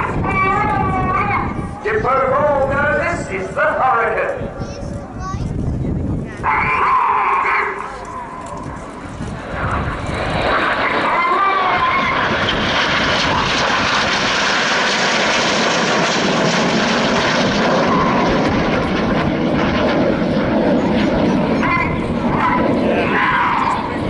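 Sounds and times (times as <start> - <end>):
jets flying by: 6.2 - 24.0.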